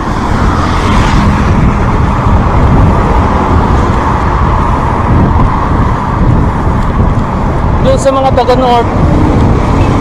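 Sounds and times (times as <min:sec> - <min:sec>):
wind rushing over microphone: 0:00.0 - 0:10.0.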